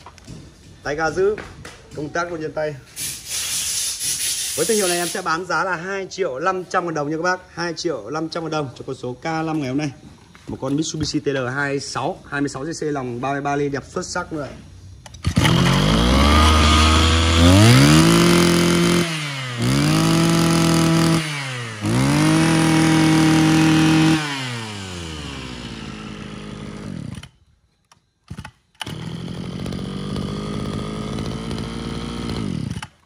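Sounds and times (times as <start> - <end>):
brushcutter engine idling and revving: 15.1 - 27.4, 28.3 - 33.0.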